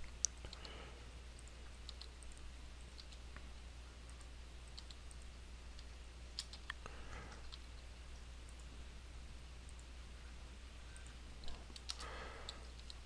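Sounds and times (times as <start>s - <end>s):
low steady hum: 0.0s - 13.0s
mouse and keyboard clicks: 1.4s - 3.3s, 4.1s - 7.6s, 11.0s - 13.0s.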